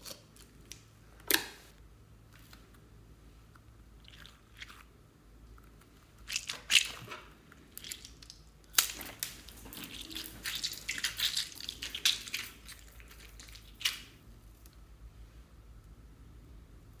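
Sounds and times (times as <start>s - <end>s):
gel bead ball squishing: 5.6s - 14.2s.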